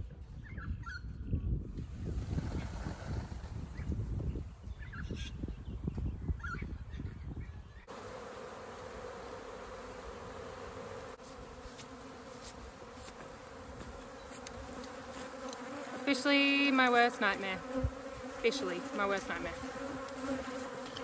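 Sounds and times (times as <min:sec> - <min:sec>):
honeybee swarm buzzing: 0:07.8 - 0:21.0.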